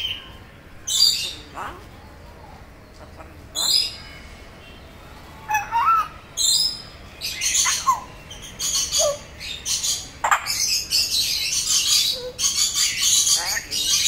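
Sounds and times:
parrot harsh rasping squawks: 5.4s - 6.2s, 11.7s - 14.0s.

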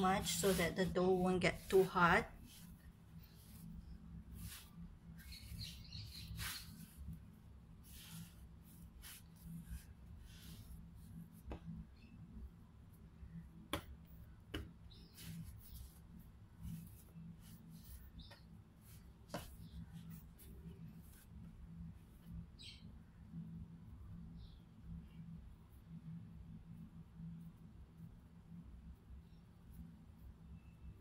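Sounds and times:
hands kneading dough: 0.0s - 11.9s, 13.5s - 21.5s.

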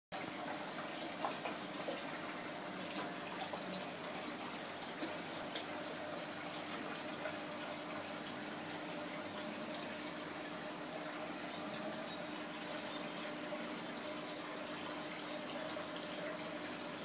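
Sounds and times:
aquarium water trickling and bubbling: 0.1s - 17.0s
small drips and pops: 0.6s - 2.2s.

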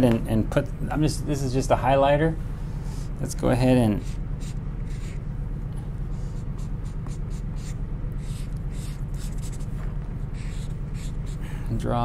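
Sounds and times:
low hum: 0.0s - 12.0s
highlighter scratching on card: 3.9s - 5.3s, 6.1s - 11.4s.

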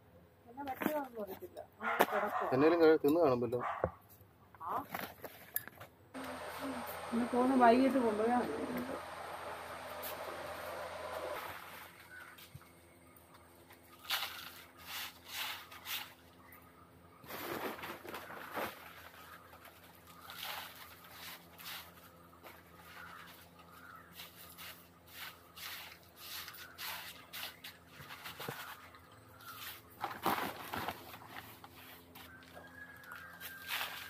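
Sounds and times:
dry material rustling and scraping: 13.9s - 16.3s, 17.2s - 34.0s.

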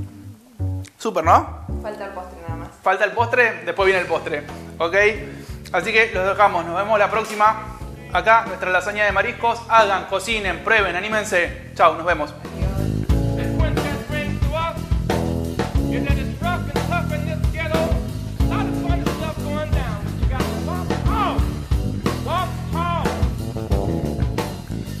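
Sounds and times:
guitar: 0.0s - 25.0s
steady drum beat: 1.3s - 25.0s
person singing: 12.5s - 14.8s, 16.1s - 21.6s.

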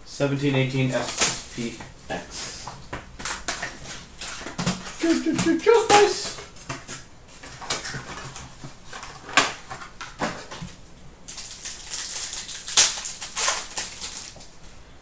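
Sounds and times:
cards crackling: 0.9s - 14.6s
wrapper crinkling and tearing: 3.2s - 10.6s, 11.3s - 14.6s.

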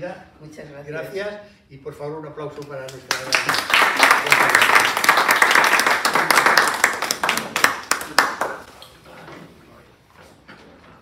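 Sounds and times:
audience applauding: 3.1s - 8.7s.

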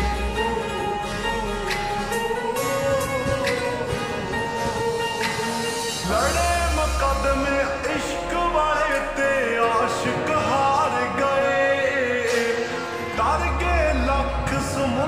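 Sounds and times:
deep bass: 0.0s - 12.3s, 13.1s - 15.0s
instrumental backing: 0.0s - 15.0s
man singing: 6.0s - 15.0s.

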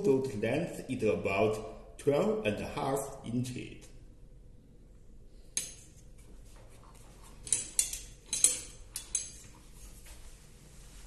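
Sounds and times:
steel ruler clinking: 5.5s - 6.0s, 7.4s - 9.6s.

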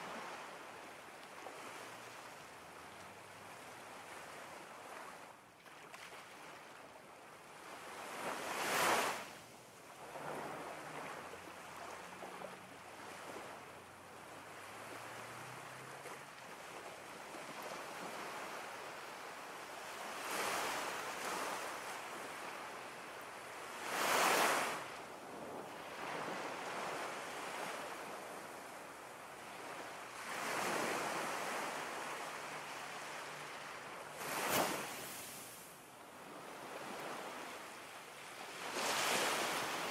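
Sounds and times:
ocean waves breaking: 29.5s - 35.6s.

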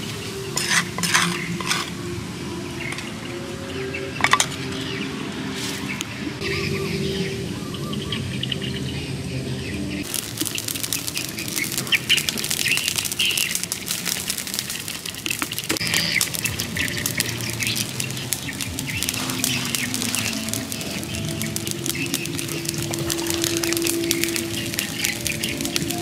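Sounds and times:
fire crackling and popping: 0.0s - 3.2s, 9.9s - 26.0s
birds chirping: 0.0s - 26.0s.

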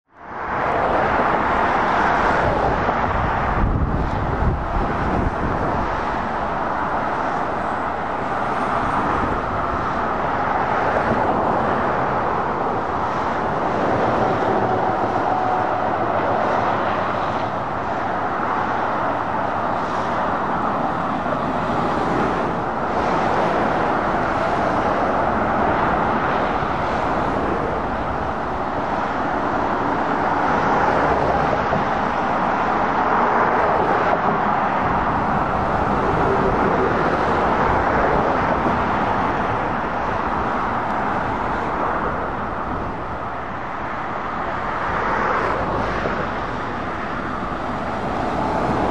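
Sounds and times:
road traffic passing: 0.1s - 48.9s.

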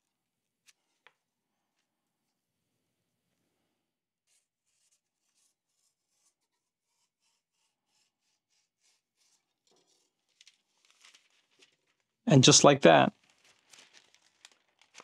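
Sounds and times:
knife scratching paper: 4.2s - 10.9s.

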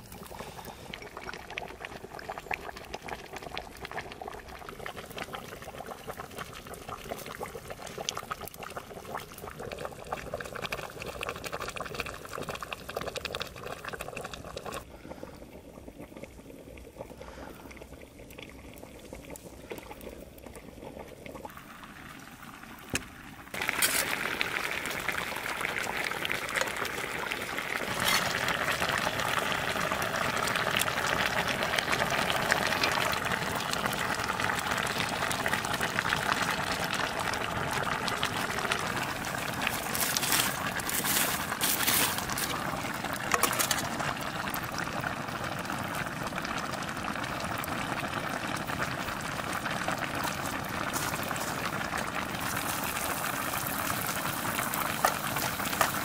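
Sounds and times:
stew bubbling in a pot: 0.0s - 56.0s
wood fire crackling: 22.2s - 56.0s.

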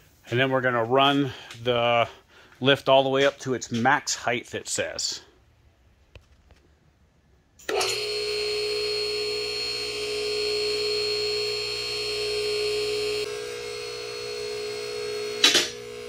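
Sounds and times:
hydraulic pump motor whine: 7.6s - 16.0s.

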